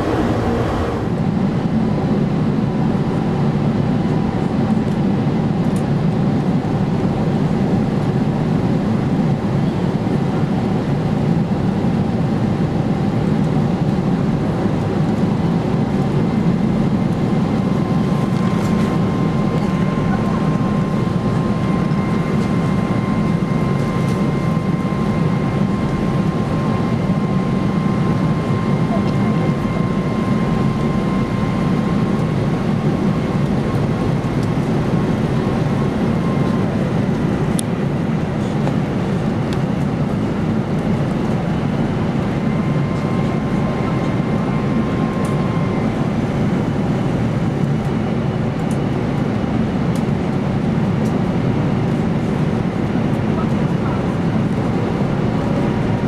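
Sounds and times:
thin high whine: 0.0 - 1.6
jet engine and airflow roar: 0.0 - 56.0.

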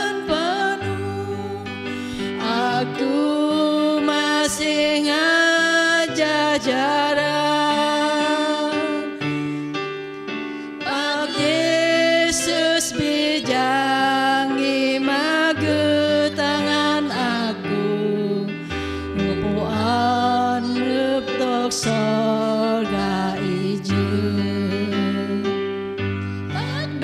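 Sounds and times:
women singing a hymn: 0.0 - 9.2, 10.8 - 25.6, 26.6 - 27.0
instrumental accompaniment: 0.0 - 27.0.

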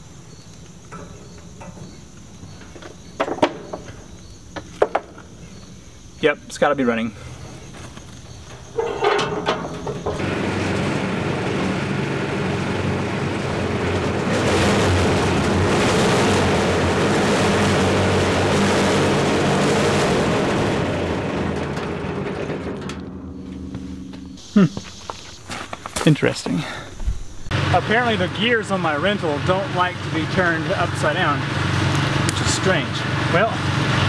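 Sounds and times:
cement mixer engine running: 7.1 - 25.0, 27.5 - 34.0
concrete pouring from drum: 8.8 - 23.0.

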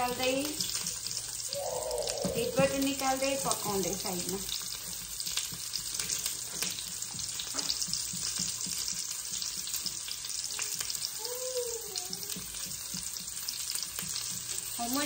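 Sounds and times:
eggs sizzling in a pan: 0.0 - 15.0
rising and falling tone: 1.5 - 3.1
spatula scraping and tapping pan: 4.5 - 11.0.

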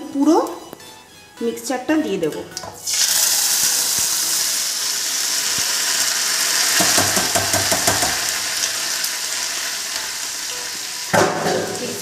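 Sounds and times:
paste sizzling in hot oil: 2.8 - 12.0.

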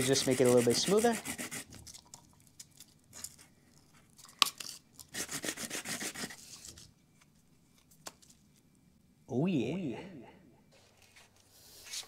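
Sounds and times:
rasping sanding strokes: 0.0 - 1.7, 5.1 - 6.5
sandpaper scraping plastic: 0.0 - 1.8, 5.1 - 6.9.

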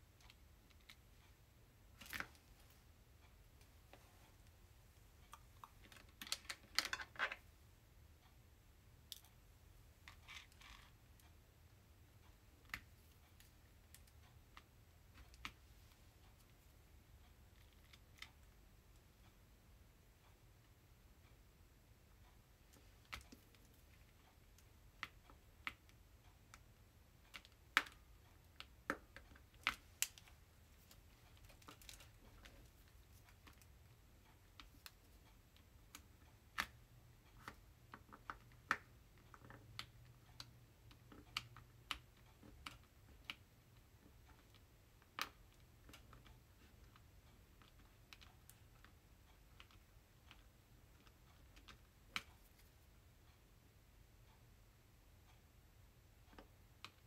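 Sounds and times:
small plastic clicks and taps: 5.2 - 7.4, 22.7 - 52.8.

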